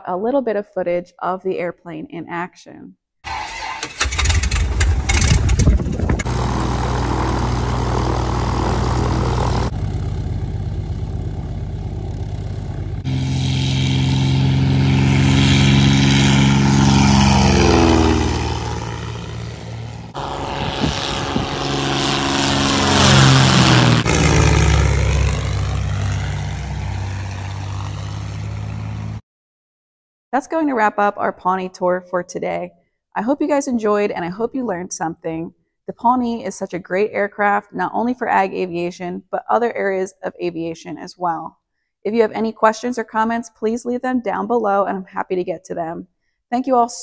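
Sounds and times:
plane passing by: 0:03.3 - 0:29.2
propeller plane engine: 0:03.3 - 0:29.2.

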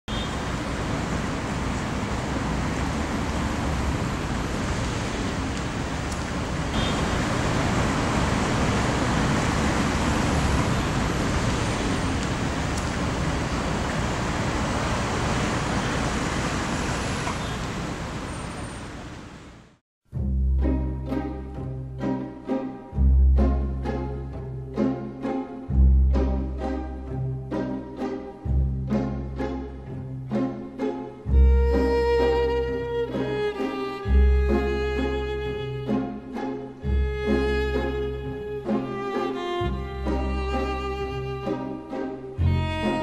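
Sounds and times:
city traffic rumble and hiss: 0:00.1 - 0:43.0
music: 0:20.1 - 0:43.0.

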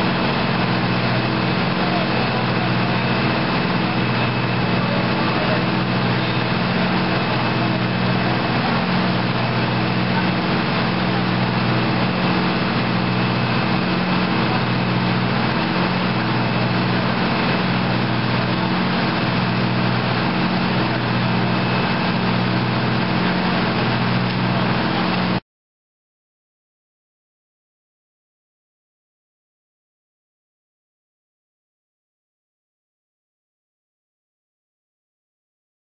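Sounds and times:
diesel engine running: 0:00.0 - 0:25.4.

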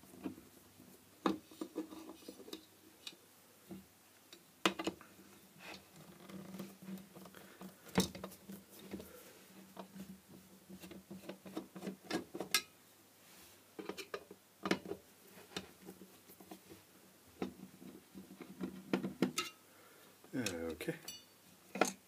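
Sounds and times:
faint steady hum: 0:00.0 - 0:22.0
clicks and scrapes of metal parts: 0:13.8 - 0:14.8, 0:18.3 - 0:19.6.

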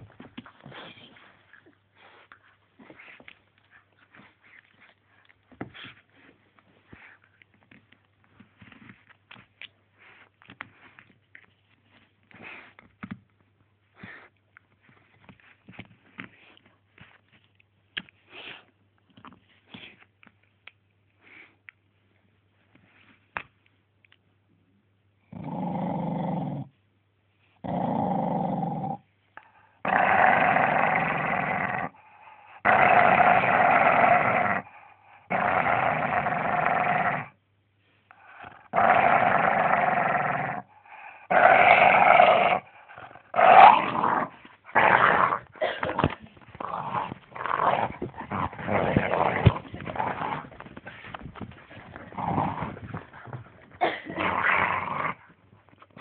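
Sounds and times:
dog growling: 0:25.3 - 0:26.7, 0:27.6 - 0:37.4, 0:38.2 - 0:55.3.

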